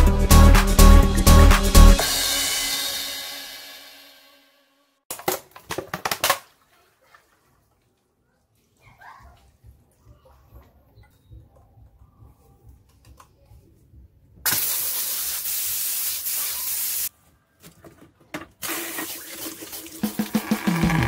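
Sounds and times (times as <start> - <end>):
music: 0.0 - 4.9, 20.0 - 21.0
water gushing from tap: 18.6 - 21.0.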